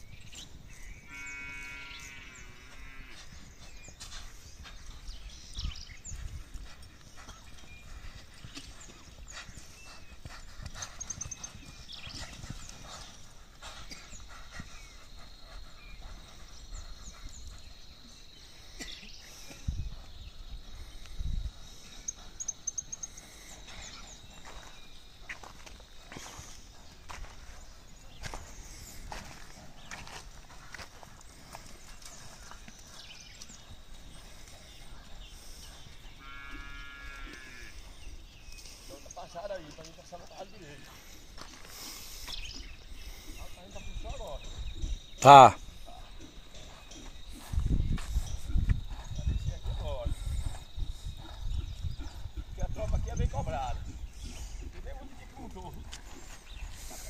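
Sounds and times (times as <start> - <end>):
birds chirping: 0.0 - 57.0
distant hoofbeats on dirt: 0.0 - 57.0
animal call: 0.9 - 3.4, 34.6 - 38.0
high insect buzz: 35.4 - 37.9.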